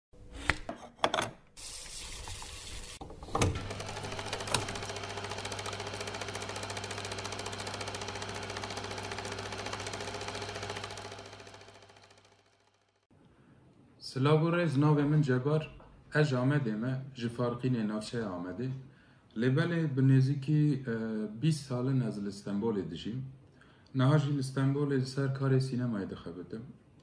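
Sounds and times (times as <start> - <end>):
projector starting clunk: 3.0 - 11.7
projector mechanical clatter: 3.0 - 12.2
projector reel clicks: 3.3 - 11.1.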